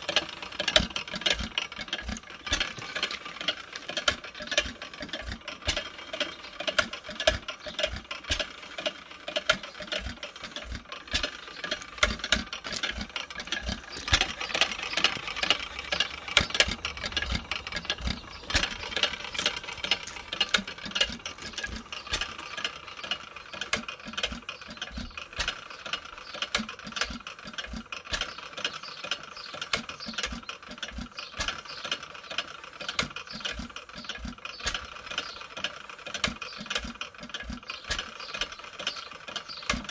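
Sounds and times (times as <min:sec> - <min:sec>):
old gas engine clicking and rattling: 0:00.0 - 0:39.9
sharp engine knocks: 0:09.3 - 0:22.8.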